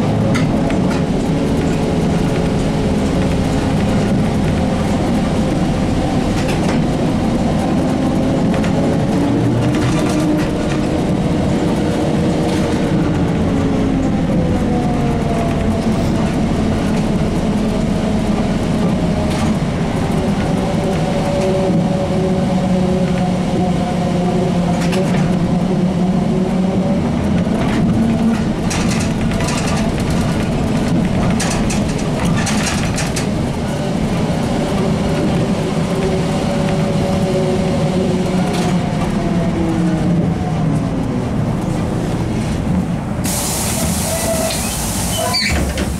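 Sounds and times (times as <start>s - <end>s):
body rattles and clicks: 0.0s - 21.9s, 27.1s - 37.4s
trolleybus running gear rumble: 0.0s - 45.9s.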